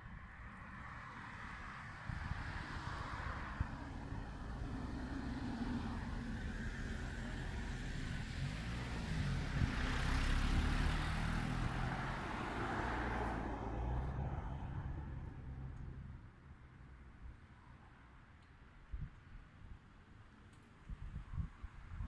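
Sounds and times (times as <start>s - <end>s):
road vehicle passing: 0.6s - 18.1s
steady low rumble: 13.3s - 17.6s.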